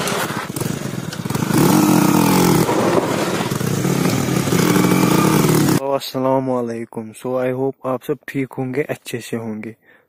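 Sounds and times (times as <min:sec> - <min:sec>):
motorcycle engine revving: 0:00.0 - 0:05.8.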